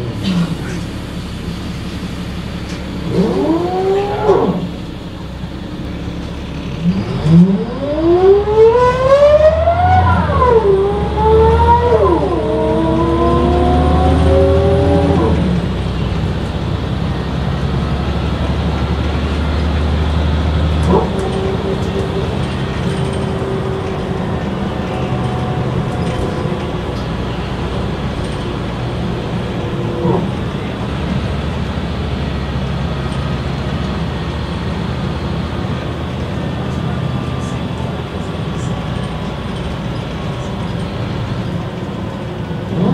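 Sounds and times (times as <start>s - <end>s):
diesel engine low drone: 0.0s - 42.9s
bus gearbox whine: 11.8s - 42.9s.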